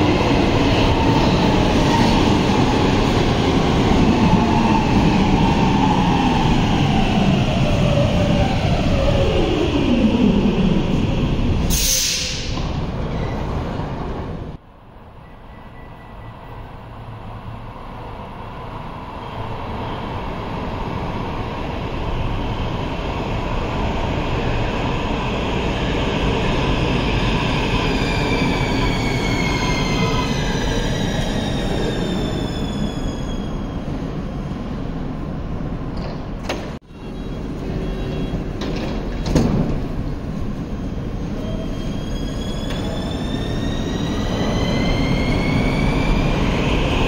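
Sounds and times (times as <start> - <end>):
metro train running: 0.0 - 47.0
train braking: 40.6 - 47.0.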